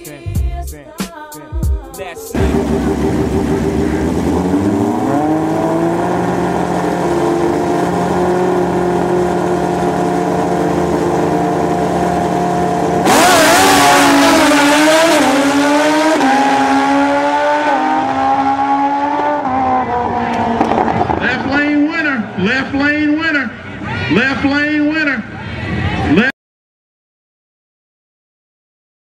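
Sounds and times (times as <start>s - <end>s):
motorcycle engines revving: 2.3s - 23.9s.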